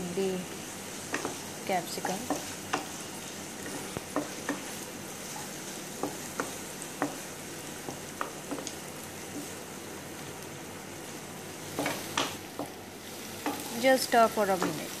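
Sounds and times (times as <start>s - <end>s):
vegetables sizzling in oil: 0.0s - 15.0s
spatula clicking against pan: 1.1s - 1.4s, 7.8s - 9.5s.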